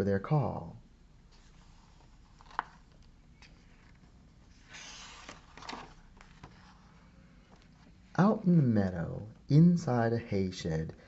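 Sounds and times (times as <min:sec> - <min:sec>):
book page rustling: 0:01.3 - 0:08.0.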